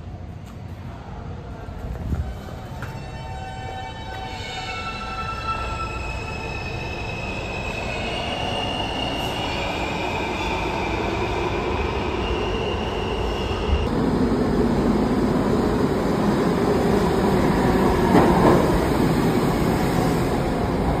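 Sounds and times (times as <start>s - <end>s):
train rumble and clatter: 0.0s - 6.0s, 13.2s - 21.0s
high squealing train tones: 2.1s - 13.9s.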